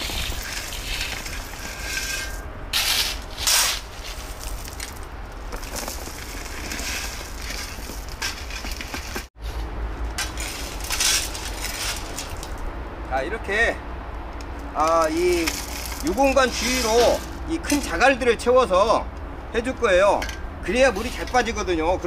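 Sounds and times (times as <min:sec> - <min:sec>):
material rustling and crunching: 0:14.9 - 0:17.9.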